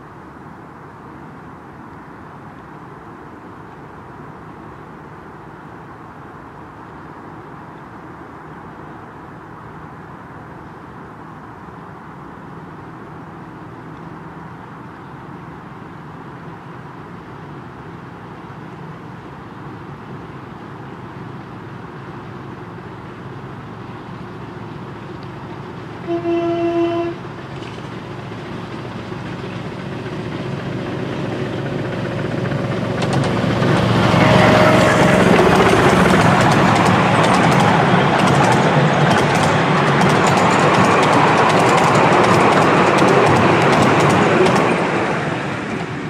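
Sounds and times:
miniature train approaching: 21.1s - 46.0s
train whistle toot: 26.1s - 27.2s, 34.0s - 35.3s
carriages rattling past: 27.2s - 46.0s
wheels clicking over rail joints: 27.2s - 46.0s.

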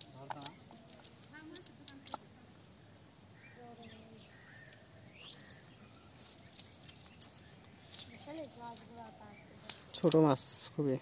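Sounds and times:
bird chirp: 0.0s - 2.2s, 2.8s - 11.0s
sharp clicks: 0.0s - 2.2s, 4.6s - 10.3s.

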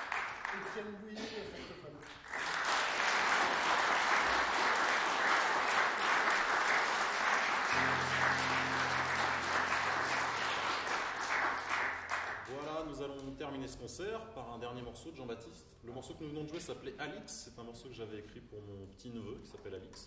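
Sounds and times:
audience applauding: 0.0s - 1.0s, 2.0s - 12.7s.

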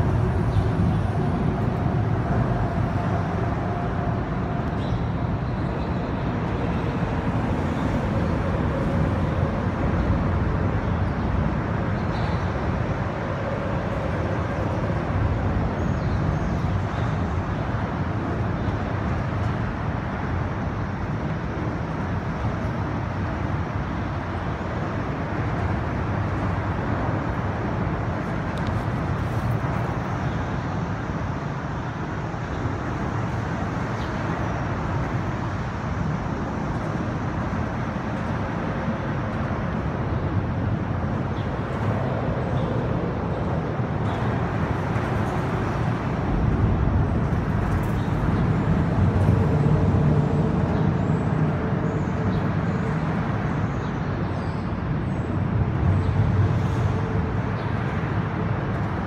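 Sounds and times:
road traffic rumble: 0.0s - 59.0s.

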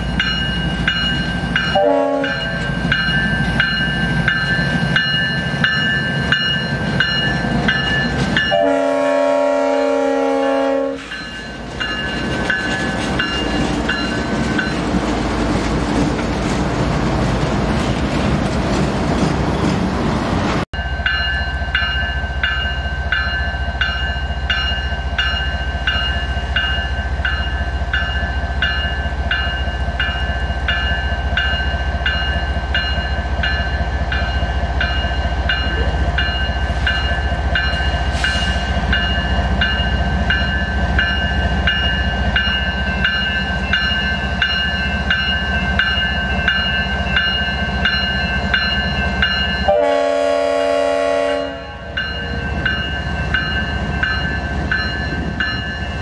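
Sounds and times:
locomotive bell ringing: 0.0s - 15.2s, 20.8s - 56.0s
locomotive horn: 1.8s - 2.6s, 8.5s - 11.1s, 49.7s - 51.9s.

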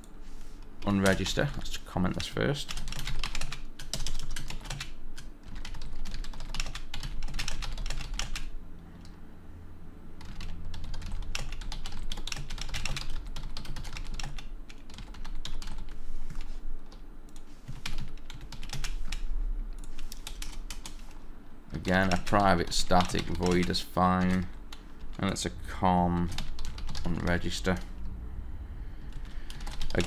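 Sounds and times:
low steady hum: 0.0s - 30.0s
fast typing on keyboard: 0.8s - 8.5s, 10.2s - 17.0s, 17.7s - 19.2s, 19.8s - 21.2s, 21.8s - 25.3s, 26.2s - 27.9s, 29.2s - 30.0s.

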